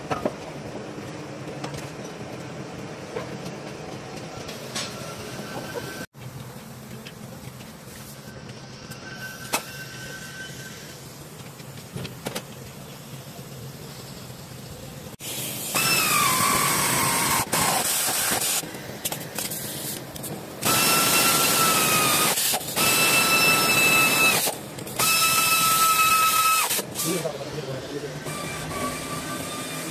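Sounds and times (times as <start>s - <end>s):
pneumatic ratchet whining: 15.6s - 18.6s, 20.6s - 27.2s.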